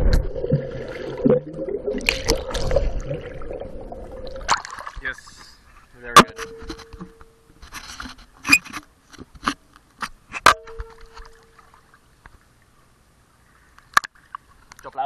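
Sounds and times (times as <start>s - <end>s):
water splashing: 0.0s - 5.6s
ringing tone: 6.3s - 7.5s, 10.5s - 11.7s.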